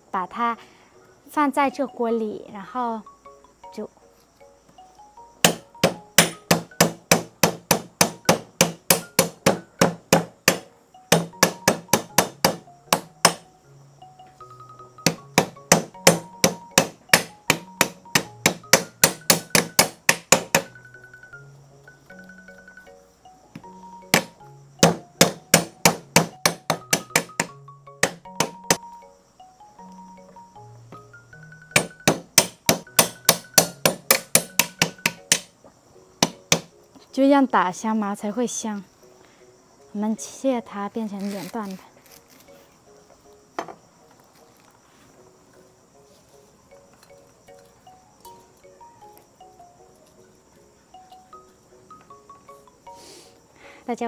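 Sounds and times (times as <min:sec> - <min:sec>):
quiet background music: 0:00.0 - 0:54.0
cleaver chopping on wooden board: 0:05.4 - 0:13.4, 0:15.0 - 0:20.7, 0:23.6 - 0:28.8, 0:31.8 - 0:35.5, 0:36.2 - 0:36.7.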